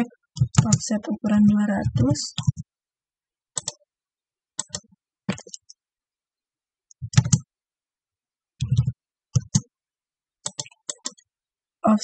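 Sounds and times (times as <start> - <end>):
keyboard key presses: 0.4 - 2.7, 3.6 - 3.8, 4.6 - 5.7, 6.9 - 7.5, 8.6 - 9.7, 10.4 - 11.2.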